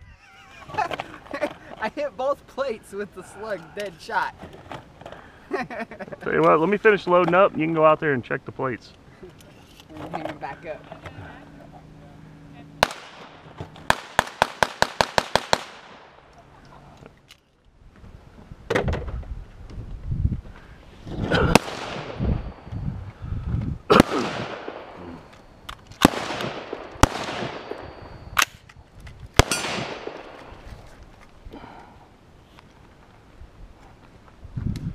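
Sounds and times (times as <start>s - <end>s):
gunshots with echo: 23.9s - 25.0s, 26.0s - 27.9s, 29.4s - 30.4s.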